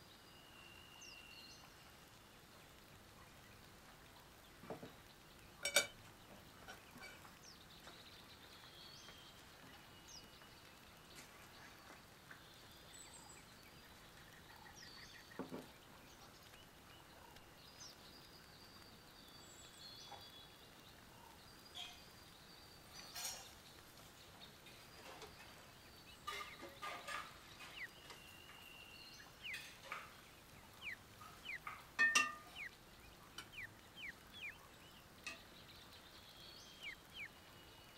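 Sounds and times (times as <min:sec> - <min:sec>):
birds chirping: 0:00.0 - 0:37.9
dishes clinking on wooden table: 0:05.6 - 0:06.0, 0:06.6 - 0:07.3, 0:32.0 - 0:32.5.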